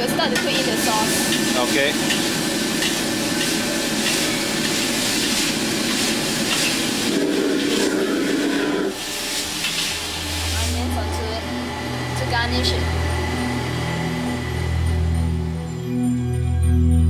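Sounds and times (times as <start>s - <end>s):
food sizzling in hot oil: 0.0s - 11.2s
ladle stirring in a wok: 0.5s - 10.8s
hum: 10.0s - 17.0s.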